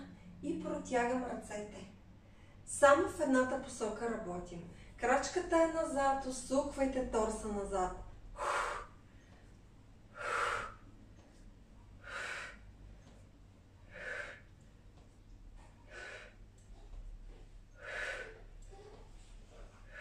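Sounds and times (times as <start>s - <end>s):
woman exhaling forcefully: 8.4s - 9.0s, 10.2s - 10.8s, 13.9s - 14.5s, 17.8s - 18.5s.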